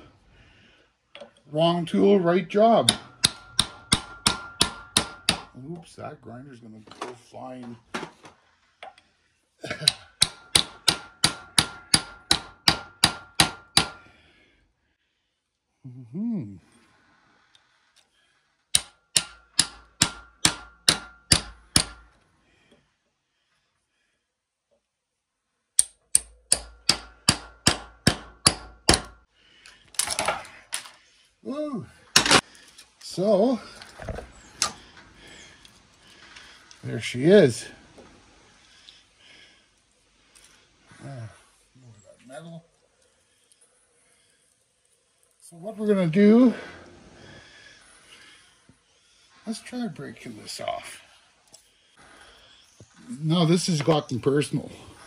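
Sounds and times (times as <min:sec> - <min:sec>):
metal core breaking apart: 0:29.9 - 0:31.0.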